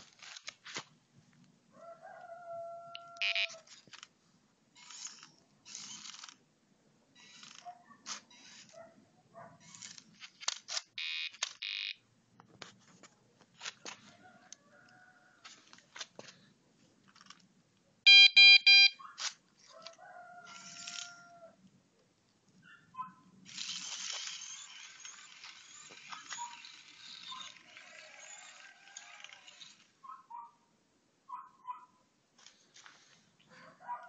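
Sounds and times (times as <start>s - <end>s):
harsh buzzer beeps: 3.2s - 3.5s, 11.0s - 12.0s, 18.1s - 19.0s
small mechanical clicks and rattles: 4.8s - 6.4s, 7.2s - 8.8s, 9.6s - 11.9s, 19.2s - 21.2s, 23.5s - 29.9s.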